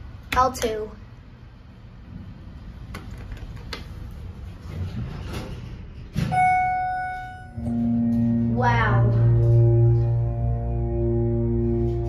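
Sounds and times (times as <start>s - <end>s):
ringing chime: 6.3s - 7.8s.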